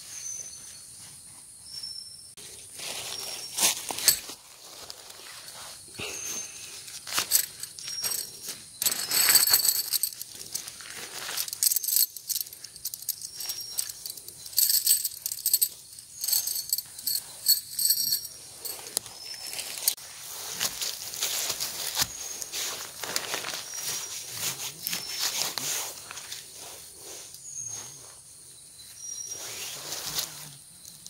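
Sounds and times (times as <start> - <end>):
objects rustling and clattering: 2.8 - 26.5
metallic clinks and jingles: 3.2 - 20.0.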